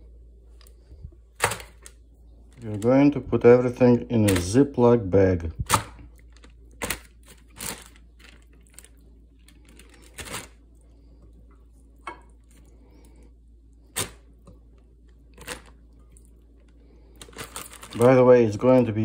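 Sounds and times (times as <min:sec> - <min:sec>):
plastic bag crinkling: 0:01.3 - 0:03.3, 0:04.2 - 0:04.7, 0:05.6 - 0:10.8, 0:13.9 - 0:19.0.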